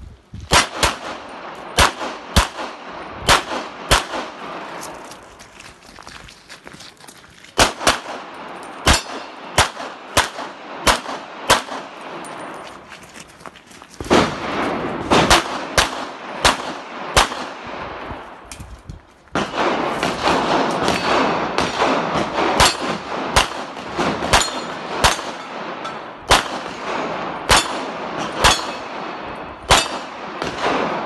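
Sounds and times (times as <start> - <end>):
pistol shots: 0.5 - 5.0, 7.6 - 12.4, 14.1 - 17.8, 19.3 - 31.0.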